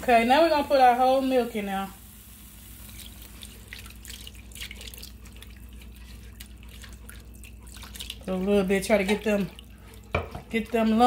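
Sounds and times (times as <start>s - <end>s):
milk pouring into skillet: 2.0s - 10.8s.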